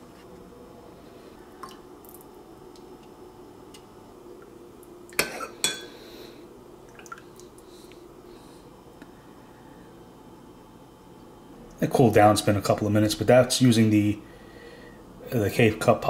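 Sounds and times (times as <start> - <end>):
dishware tapping: 5.2 - 5.9.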